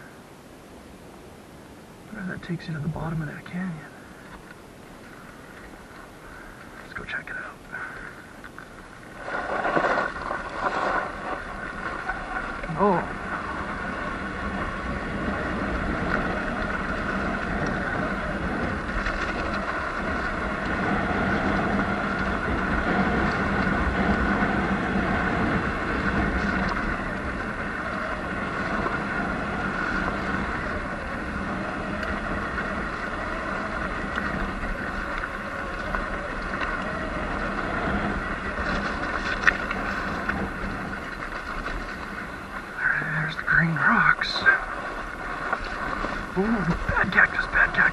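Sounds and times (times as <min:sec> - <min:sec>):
road noise: 0:00.0 - 0:47.9
wind on microphone: 0:02.9 - 0:47.9
electric motor whine: 0:11.5 - 0:42.7.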